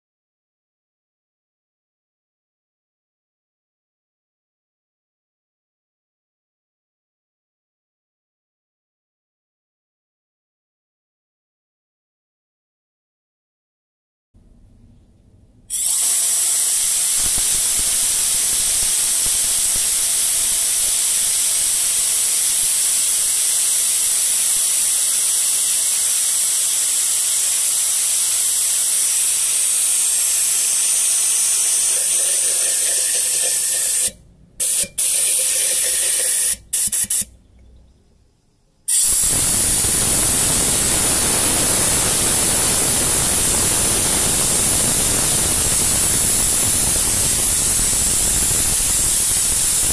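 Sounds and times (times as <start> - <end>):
compressed air hissing: 15.7 - 37.3, 38.9 - 49.9.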